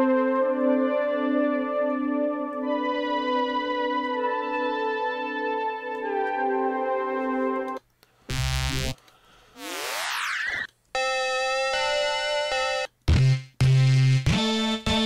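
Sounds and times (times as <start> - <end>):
synthesizer held chord: 0.0 - 9.0
rising synth sweep: 9.6 - 10.7.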